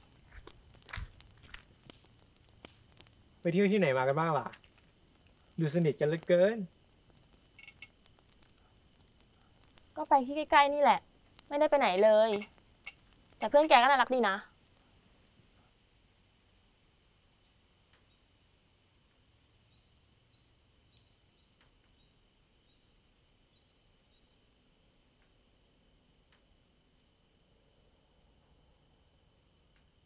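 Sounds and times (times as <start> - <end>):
faint clicks: 0.0 - 3.4, 4.1 - 13.5
crickets chirping: 0.0 - 30.0.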